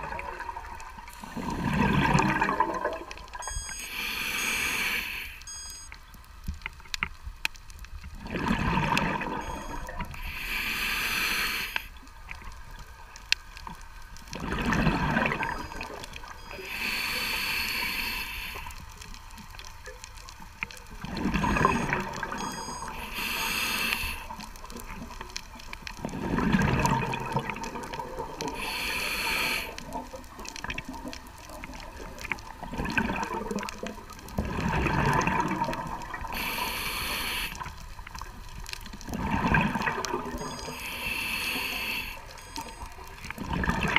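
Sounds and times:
bubbling exhale underwater: 0.0s - 3.5s, 8.2s - 10.0s, 14.4s - 16.4s, 21.0s - 22.9s, 26.0s - 31.0s, 32.0s - 37.7s, 39.0s - 42.2s, 43.3s - 43.9s
regulator hissing inhale: 3.8s - 5.5s, 10.2s - 12.0s, 16.5s - 18.9s, 22.9s - 24.4s, 28.5s - 29.8s, 36.3s - 37.8s, 40.6s - 42.7s.

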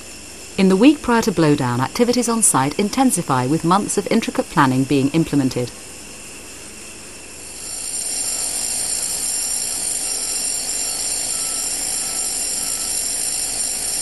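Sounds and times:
high-pitched whine: 6.8s - 14.0s
heavy machinery running: 7.7s - 14.0s.

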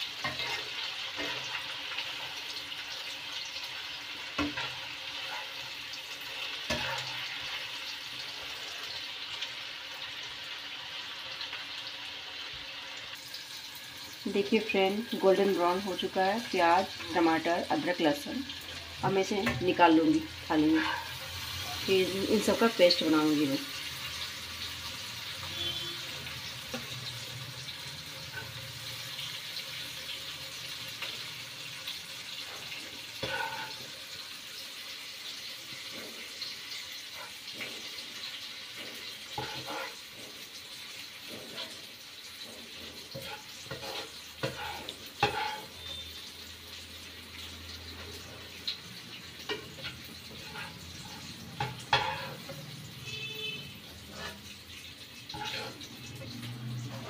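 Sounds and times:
spoon clinking and scraping on pan: 0.0s - 9.0s, 20.6s - 23.0s, 25.4s - 29.5s, 32.3s - 34.3s, 35.3s - 46.3s, 47.4s - 57.0s
oil sizzling in a pan: 0.0s - 57.0s.

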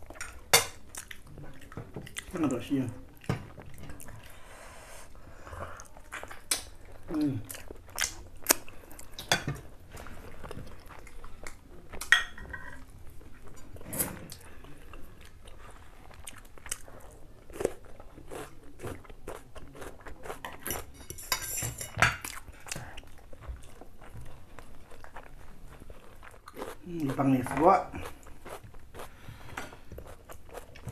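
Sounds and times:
people chewing and biting: 5.6s - 12.1s, 13.1s - 21.0s, 22.2s - 30.9s
cutlery clinking on plates: 12.0s - 12.8s, 20.6s - 22.3s.

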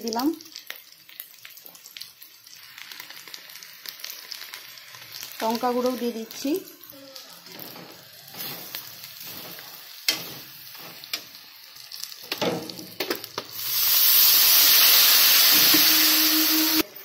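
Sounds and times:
spices frying in oil: 0.0s - 17.0s
steel spatula scraping a pan: 7.5s - 11.2s, 15.5s - 16.9s.

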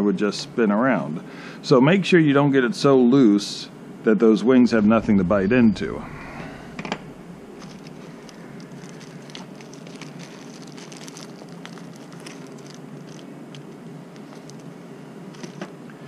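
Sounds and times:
steady background hum: 0.0s - 16.0s
plastic packaging rustling: 7.5s - 15.7s.

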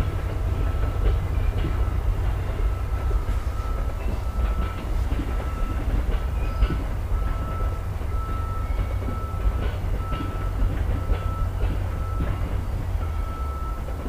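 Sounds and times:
train cars rumbling past: 0.0s - 14.0s
wheel clicks over rail joints: 3.0s - 12.8s.

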